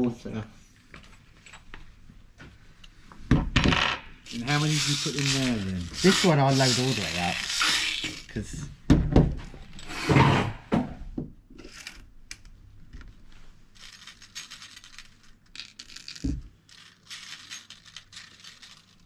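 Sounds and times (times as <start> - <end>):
steel bbs rattling and clinking: 4.2 - 8.3, 13.8 - 19.0.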